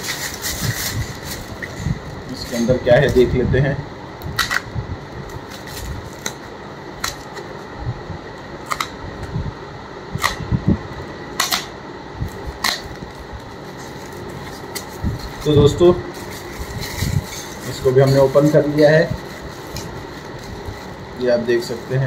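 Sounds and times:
hands rustling wrapping: 0:00.0 - 0:02.7, 0:12.3 - 0:22.0
plastic packaging clicking and crackling: 0:12.6 - 0:22.0.

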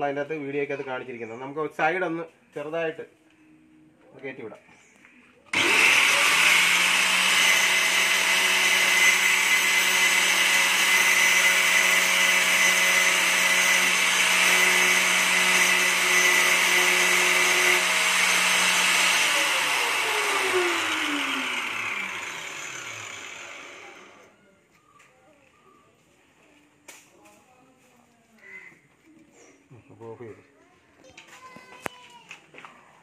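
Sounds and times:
angle grinder grinding metal: 0:05.5 - 0:24.3.

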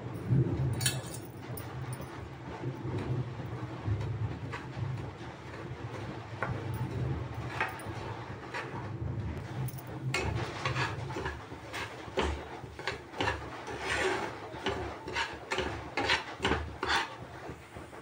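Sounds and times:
steel spatula scraping pan: 0:04.4 - 0:08.8, 0:09.4 - 0:17.6.

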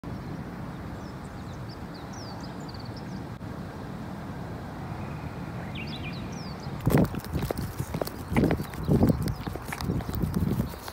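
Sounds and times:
small birds chirping: 0:00.1 - 0:03.4, 0:05.0 - 0:10.9
wind rumble on microphone: 0:04.4 - 0:10.9.

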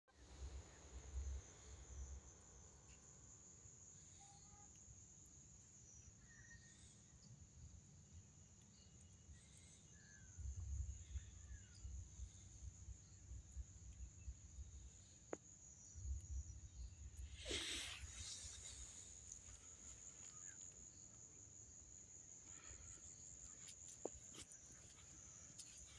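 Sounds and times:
insects trilling: 0:00.2 - 0:25.9.

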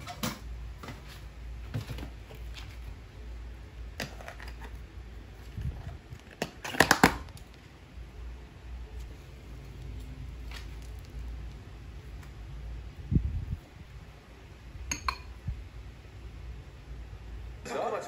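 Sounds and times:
plastic lid cracking: 0:06.3 - 0:07.4.

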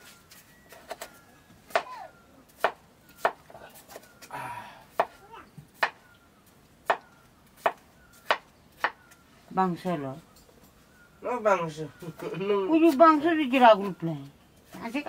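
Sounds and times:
knife chopping on wooden board: 0:01.7 - 0:02.0, 0:02.6 - 0:04.0, 0:05.8 - 0:06.0, 0:06.8 - 0:09.0.

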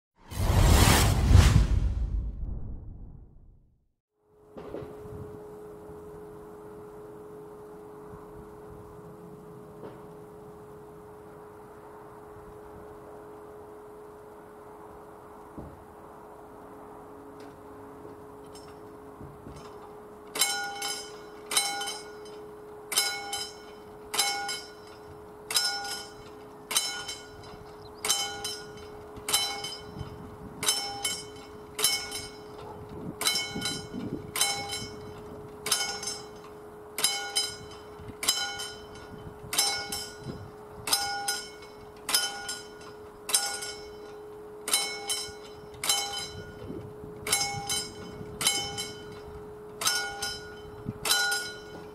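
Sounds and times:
faint steady hum: 0:04.2 - 0:51.9
level crossing warning bell: 0:17.0 - 0:51.9.

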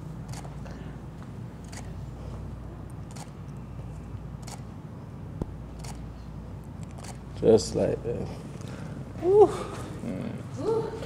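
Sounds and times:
steady low hum: 0:00.0 - 0:11.0
camera shutter clicks: 0:01.7 - 0:01.9, 0:03.1 - 0:03.4, 0:04.4 - 0:04.7, 0:05.8 - 0:06.0, 0:06.8 - 0:07.2.

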